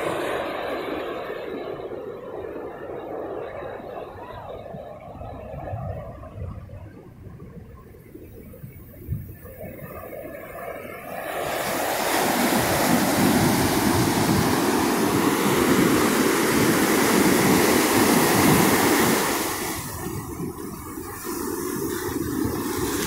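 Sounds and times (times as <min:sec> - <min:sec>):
ocean waves breaking: 0:00.0 - 0:03.9, 0:10.0 - 0:23.0.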